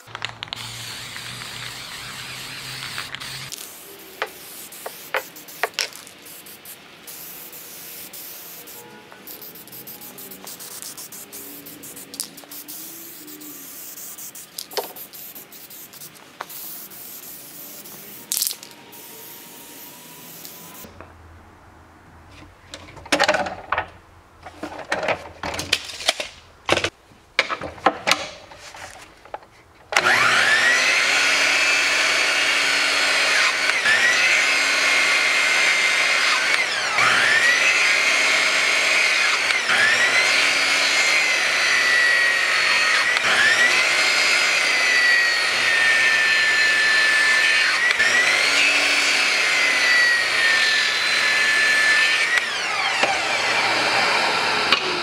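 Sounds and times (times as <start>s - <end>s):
miter saw cutting wood: 0.0s - 5.9s, 30.0s - 55.0s.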